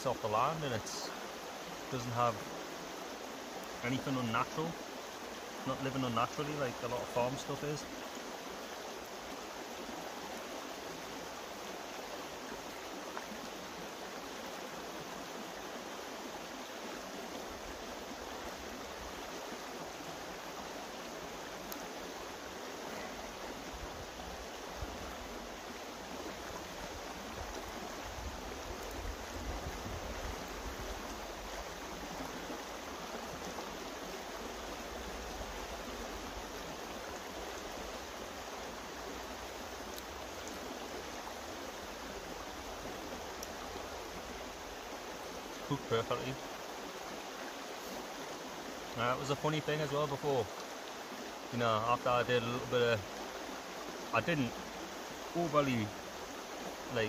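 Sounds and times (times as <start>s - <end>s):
stream water rushing: 0.0s - 57.0s
wind rumbling on microphone: 27.3s - 31.0s.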